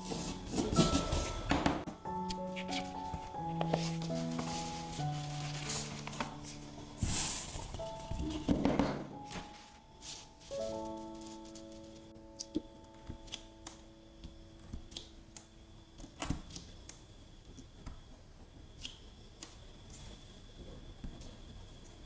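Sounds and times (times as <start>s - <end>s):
held musical chord: 0.0s - 8.5s
hands handling sticker paper: 2.4s - 6.7s.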